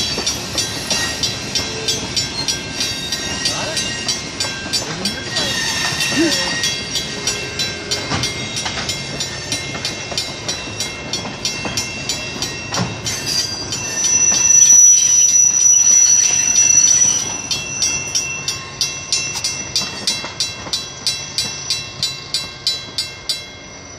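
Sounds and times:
high wheel squeal: 0.0s - 4.1s, 5.2s - 8.1s, 13.0s - 18.6s
crossing bell ringing: 0.0s - 23.9s
train cars rolling on rails: 0.0s - 23.9s.

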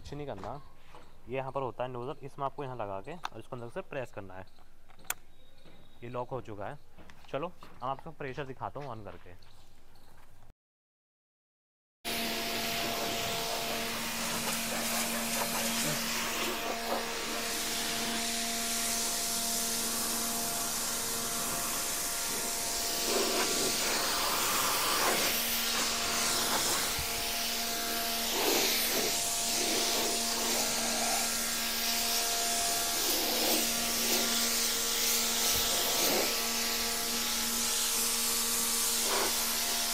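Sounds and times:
pressure washer pump humming: 12.1s - 39.9s
water jet hissing: 12.1s - 39.9s.

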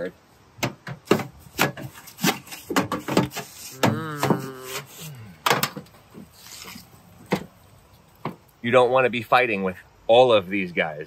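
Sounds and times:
stiff brush scrubbing metal vent: 1.1s - 5.3s, 6.0s - 8.3s.

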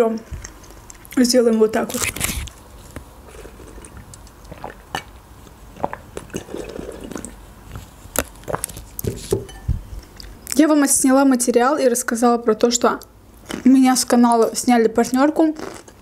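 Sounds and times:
sips and swallows: 3.2s - 9.3s
glass bowl clink: 9.4s - 9.8s.

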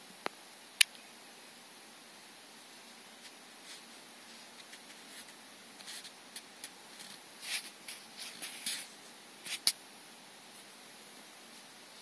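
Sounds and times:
snake rustling on bedding: 2.6s - 9.8s.

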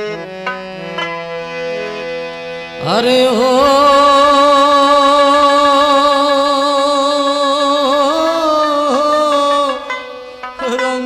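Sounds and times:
person singing a folk song: 2.8s - 11.0s.

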